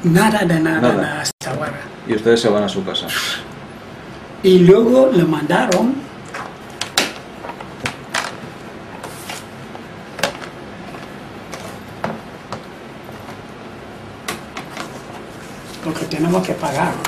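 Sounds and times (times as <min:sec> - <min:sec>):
paper rustling: 0:09.0 - 0:09.5.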